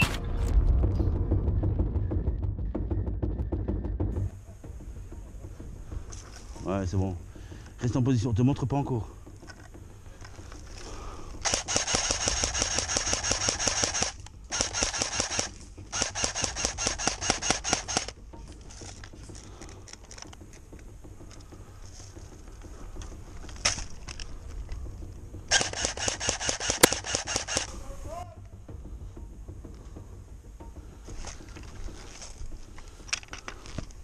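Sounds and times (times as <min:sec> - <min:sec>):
airsoft rifle full-auto bursts: 0:11.4 - 0:18.2, 0:25.5 - 0:27.8.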